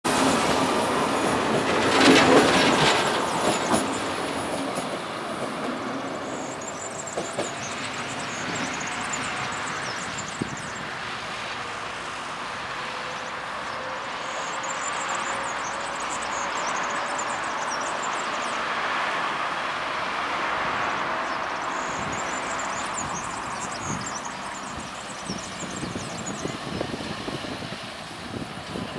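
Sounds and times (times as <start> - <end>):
train wheels clacking on rail joints: 0.1 - 10.7
train rumble: 0.1 - 28.9.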